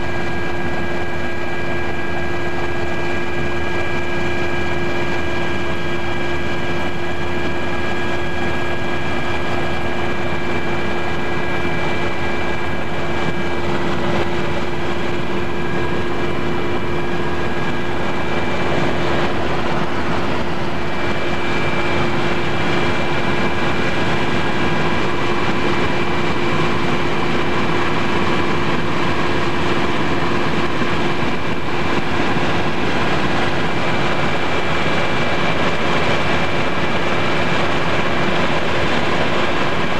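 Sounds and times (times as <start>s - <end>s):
aircraft engine drone: 0.0s - 39.9s
constant hum: 0.0s - 39.9s
rushing air noise: 5.0s - 27.8s.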